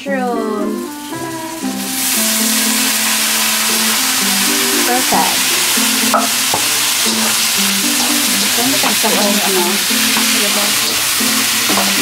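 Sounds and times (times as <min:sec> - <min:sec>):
food sizzling in a wok: 0:00.2 - 0:12.0
spatula knocking a pan: 0:05.4 - 0:12.0.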